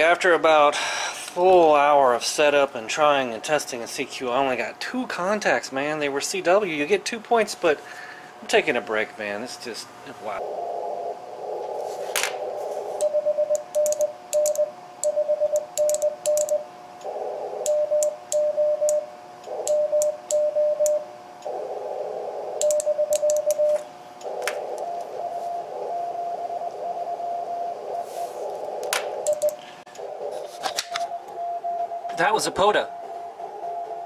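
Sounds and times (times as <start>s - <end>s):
higher-pitched morse signal: 12.7s - 16.6s, 17.7s - 21.6s, 22.5s - 34.0s
morse code tone: 13.0s - 16.7s, 17.7s - 21.1s, 22.6s - 28.5s, 29.1s - 29.6s
sharp clicks: 13.5s - 21.5s, 22.6s - 23.6s, 28.9s - 30.1s.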